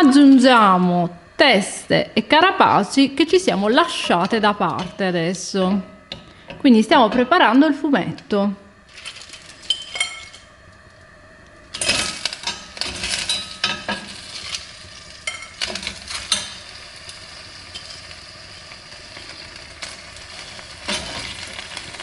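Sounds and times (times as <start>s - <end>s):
sizzling in hot oil: 8.8s - 22.0s.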